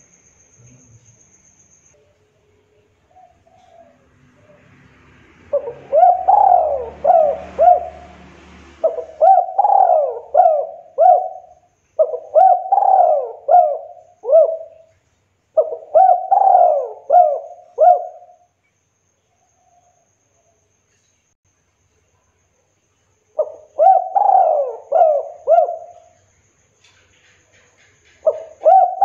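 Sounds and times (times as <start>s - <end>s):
dove cooing: 3.1s - 4.8s, 5.4s - 14.9s, 15.6s - 18.4s, 23.4s - 26.2s, 28.2s - 29.0s.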